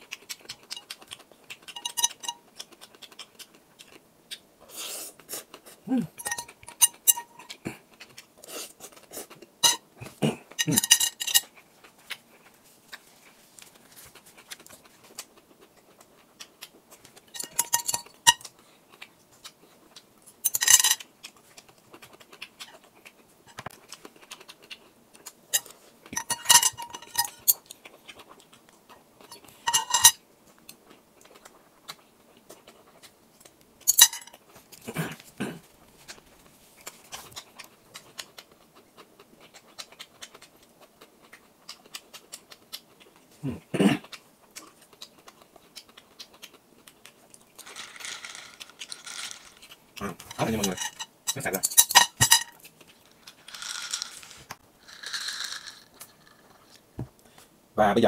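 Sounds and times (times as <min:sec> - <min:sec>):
spoon clinking against glass bowl: 0:01.8 - 0:02.4, 0:06.2 - 0:07.5, 0:09.6 - 0:09.8, 0:10.6 - 0:11.4, 0:17.4 - 0:18.4, 0:20.5 - 0:21.0, 0:25.6 - 0:27.6, 0:29.3 - 0:30.2, 0:33.9 - 0:34.3.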